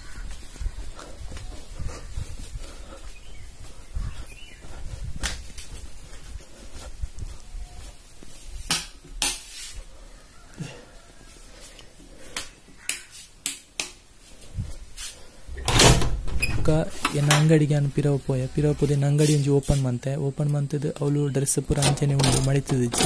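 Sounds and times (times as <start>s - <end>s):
objects clicking and knocking: 21.7s - 23.0s.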